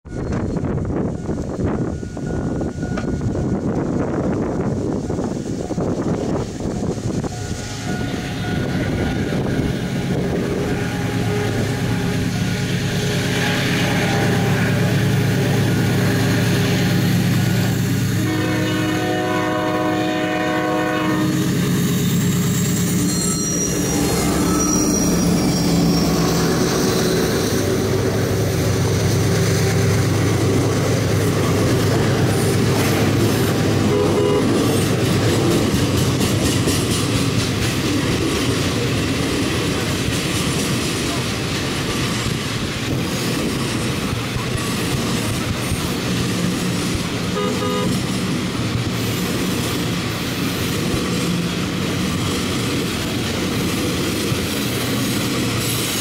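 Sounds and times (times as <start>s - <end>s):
diesel locomotive passing: 0.0s - 56.0s
train horn blast: 7.3s - 22.5s, 32.4s - 34.9s, 47.3s - 48.1s
high wheel squeal: 21.3s - 28.5s
wheels clacking over rail joints: 21.6s - 56.0s.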